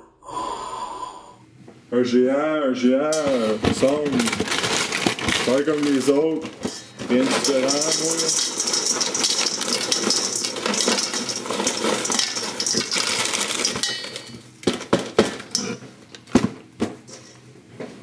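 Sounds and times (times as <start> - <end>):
dry food poured into a bowl: 3.0 - 15.6.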